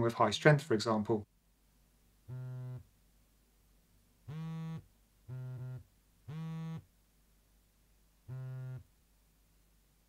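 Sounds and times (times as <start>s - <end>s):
vibrating alarm buzzing hum: 2.3s - 2.8s, 4.3s - 6.8s, 8.3s - 8.9s.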